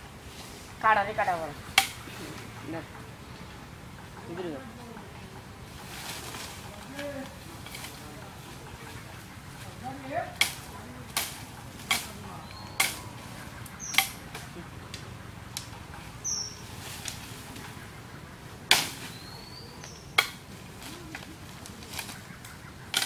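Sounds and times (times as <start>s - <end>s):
small birds chirping: 0.0s - 23.0s
tool chopping bamboo: 1.7s - 2.0s, 10.4s - 12.2s, 12.8s - 13.0s, 13.9s - 14.2s, 18.7s - 19.1s, 20.2s - 20.4s.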